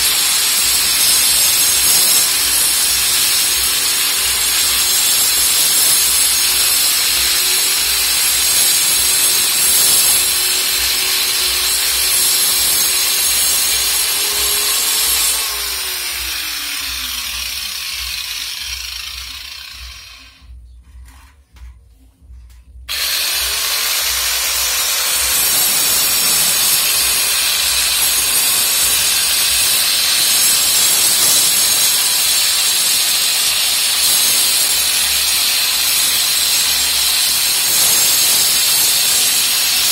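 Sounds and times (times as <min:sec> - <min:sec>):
angle grinder motor whine: 0:00.0 - 0:20.5, 0:22.9 - 0:34.0
grinder disc grinding brick: 0:00.0 - 0:21.8, 0:22.9 - 0:39.9.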